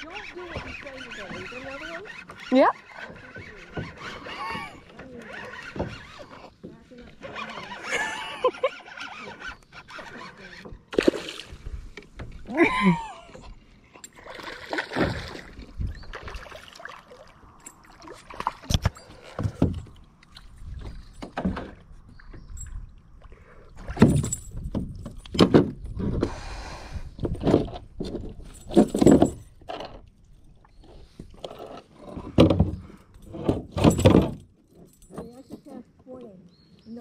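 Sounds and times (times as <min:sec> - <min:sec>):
knocks and thumps in kayak: 0:00.1 - 0:07.8, 0:14.2 - 0:16.5, 0:18.2 - 0:22.8, 0:23.8 - 0:26.4, 0:27.2 - 0:30.0, 0:30.9 - 0:34.5
fish splashing: 0:14.2 - 0:18.7.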